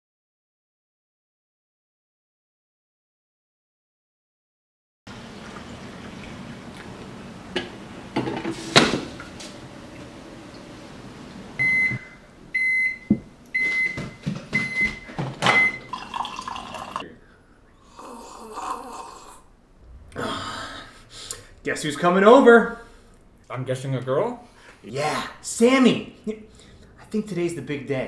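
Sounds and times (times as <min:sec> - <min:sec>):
microwave oven beeps: 0:11.6 - 0:16.1
coffee pouring into mug: 0:15.8 - 0:17.0.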